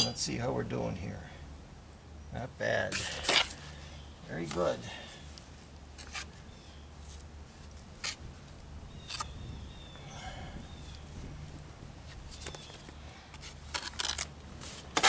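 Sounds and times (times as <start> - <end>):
trowel scraping mortar and brick: 13.4 - 15.0.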